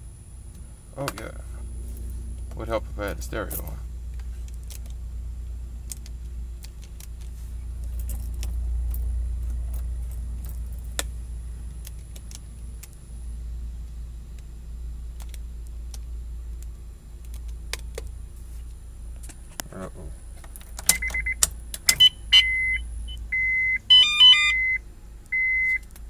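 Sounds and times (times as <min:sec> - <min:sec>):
faint high whine: 0:00.0 - 0:06.5, 0:18.2 - 0:26.0
low rumble inside car cabin: 0:00.0 - 0:26.0.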